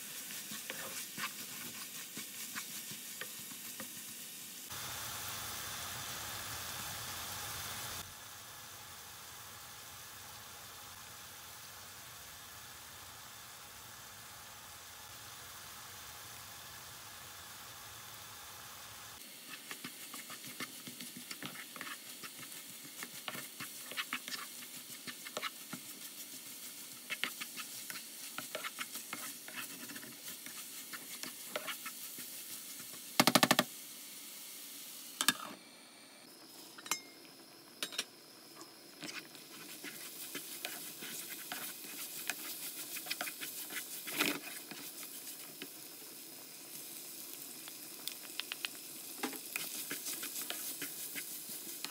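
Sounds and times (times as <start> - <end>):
mince sizzling in a wok: 0.0 - 51.9
spatula scraping a pan: 0.1 - 3.8, 19.4 - 33.0, 39.0 - 45.5, 49.4 - 51.9.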